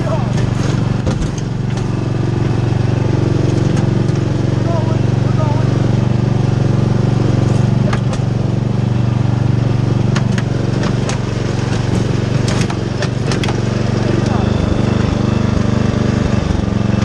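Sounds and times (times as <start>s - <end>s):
riding mower engine running: 0.0s - 17.0s
wagon knocks and clicks: 10.1s - 13.7s.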